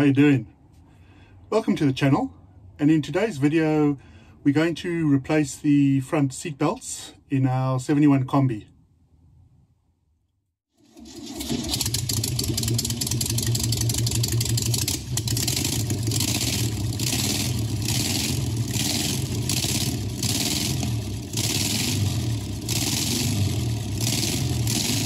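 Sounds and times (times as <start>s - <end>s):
engine running with low drone: 11.1s - 25.0s.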